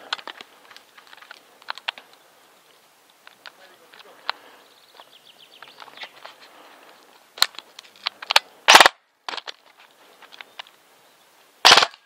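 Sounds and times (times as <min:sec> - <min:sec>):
airsoft gun firing: 0:08.7 - 0:09.0, 0:11.6 - 0:12.0.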